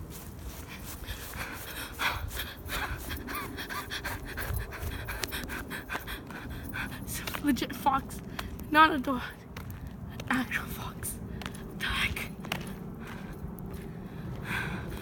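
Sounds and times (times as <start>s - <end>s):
footsteps: 0.0s - 15.0s
person breathing hard: 0.4s - 7.2s, 12.9s - 15.0s.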